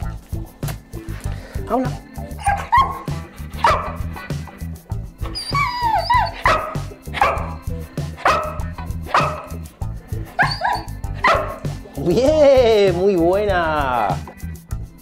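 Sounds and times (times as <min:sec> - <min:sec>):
background music with steady beat: 0:00.0 - 0:15.0
dog barking: 0:02.4 - 0:04.2, 0:05.8 - 0:07.6, 0:08.2 - 0:09.6, 0:10.3 - 0:11.6.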